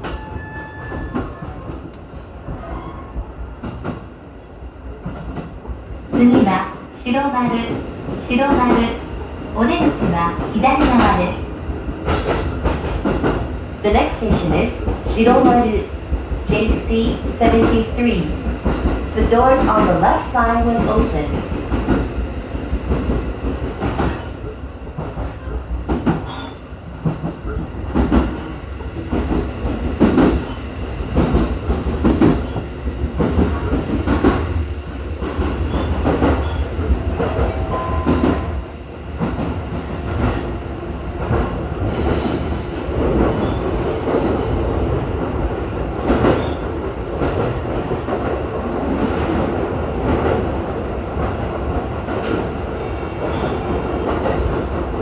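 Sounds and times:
steady train rumble: 0:00.0 - 0:55.0
train wheels clicking over rail joints: 0:11.9 - 0:13.5, 0:17.1 - 0:38.6.

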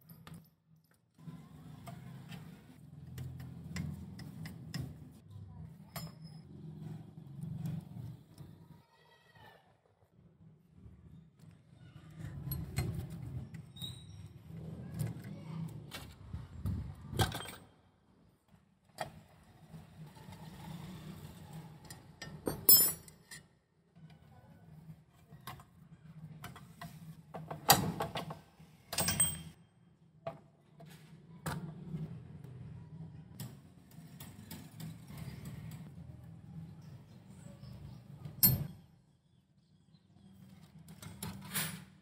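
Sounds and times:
metal tools clicking and clinking: 0:05.9 - 0:06.5, 0:21.9 - 0:23.5, 0:28.9 - 0:29.6.

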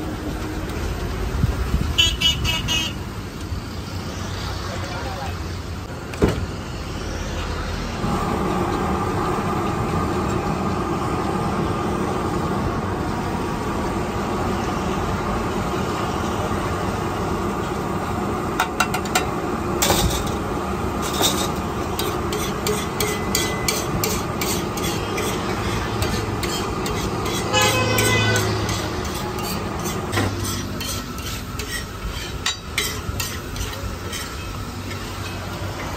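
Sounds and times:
steady horn-like hum: 0:01.8 - 0:03.3, 0:22.1 - 0:32.4
metal spatula scraping on griddle: 0:18.6 - 0:20.4, 0:21.0 - 0:35.9.

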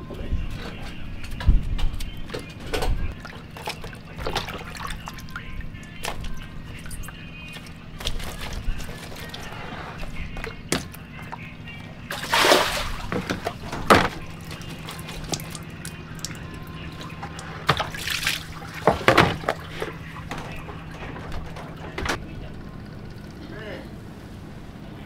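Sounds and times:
water sloshing and splashing: 0:02.3 - 0:22.2.

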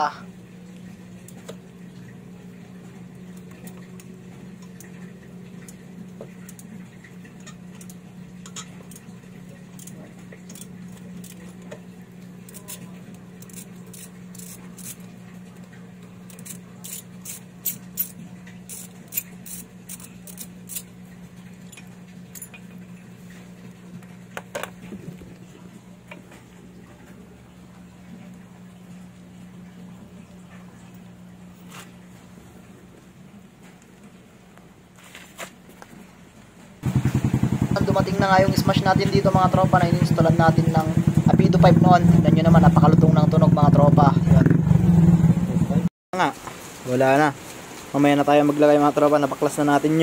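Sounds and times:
steady low hum: 0:00.0 - 0:45.9
clicks and clinks of handling parts: 0:09.7 - 0:11.6, 0:16.3 - 0:20.9, 0:21.6 - 0:22.8.

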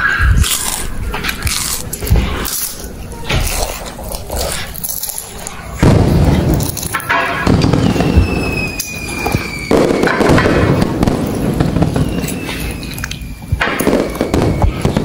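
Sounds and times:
firework bangs with crackling: 0:05.8 - 0:15.0
falling firework whistle: 0:07.0 - 0:15.0.

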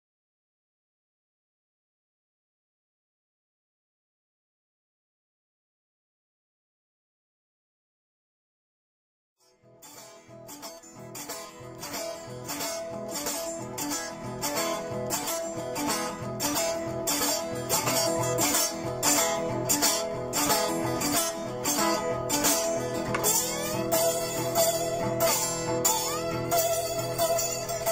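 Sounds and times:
blues acoustic guitar strumming: 0:09.6 - 0:27.9.

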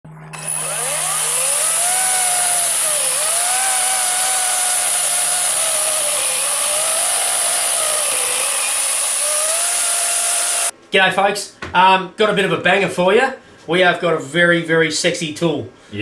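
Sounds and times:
electric chainsaw cutting log: 0:00.3 - 0:10.7.

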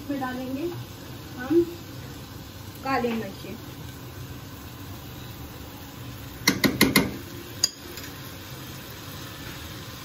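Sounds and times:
kitchen utensils tapping: 0:06.4 - 0:08.2.

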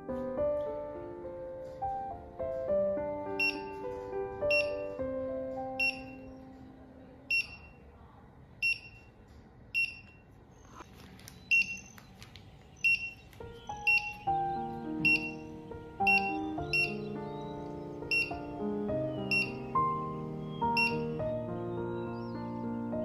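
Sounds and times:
soft piano music: 0:00.0 - 0:07.4, 0:12.8 - 0:23.0
barcode scanner beeps: 0:03.4 - 0:03.8, 0:04.5 - 0:05.0, 0:05.8 - 0:06.4, 0:07.3 - 0:07.8, 0:08.6 - 0:09.2, 0:09.8 - 0:10.2, 0:11.3 - 0:19.8, 0:20.6 - 0:21.2.

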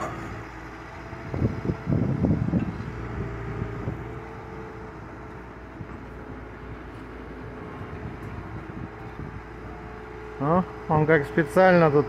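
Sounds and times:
excavator diesel engine running: 0:00.0 - 0:12.0.

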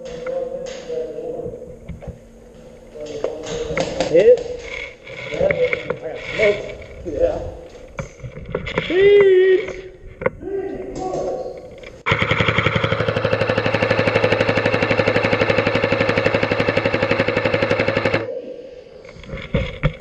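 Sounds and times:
mechanical whir: 0:11.8 - 0:18.3
airsoft rifle full-auto burst: 0:12.1 - 0:18.3.

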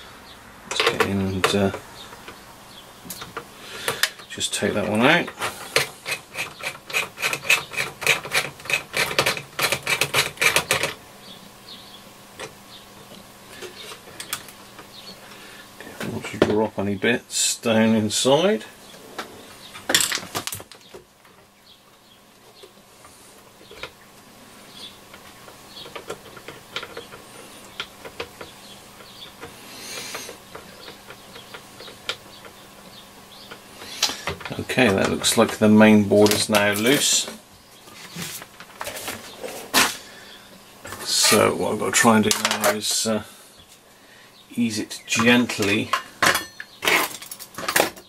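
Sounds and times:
socket wrench clicks and scrapes: 0:05.8 - 0:11.0.

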